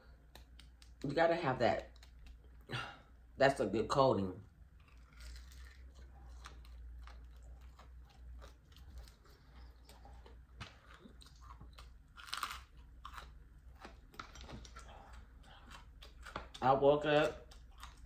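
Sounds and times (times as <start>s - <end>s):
chewing crunchy fried food: 4.5s - 18.0s.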